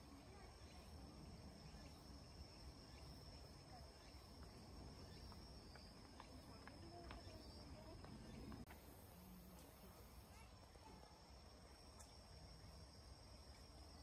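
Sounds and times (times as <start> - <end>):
faint ticks: 11.9 - 12.2.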